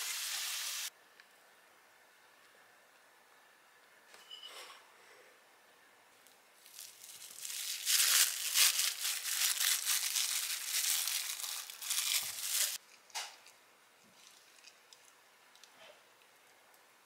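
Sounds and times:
cling film crinkling: 6.6 - 12.8.

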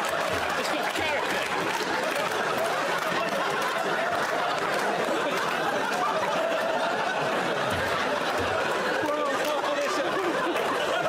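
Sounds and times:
audience laughing: 0.0 - 11.0
indistinct overlapping talk: 5.1 - 11.0.

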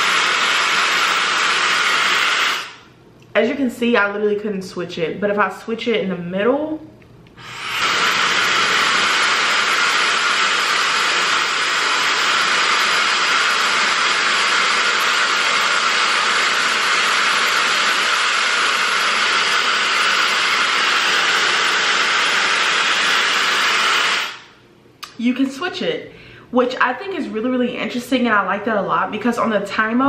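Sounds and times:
blow dryer running: 0.0 - 3.0, 7.4 - 24.6.

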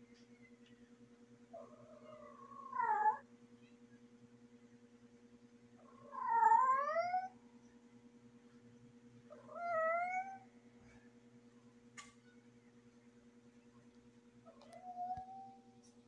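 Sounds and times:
cat yowling: 1.6 - 3.2, 5.8 - 7.4, 9.3 - 10.5, 14.6 - 15.7.

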